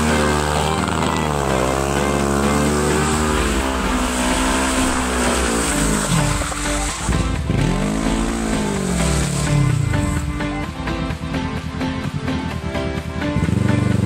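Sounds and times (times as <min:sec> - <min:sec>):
quad engine revving hard: 0:00.0 - 0:10.5, 0:13.4 - 0:14.0.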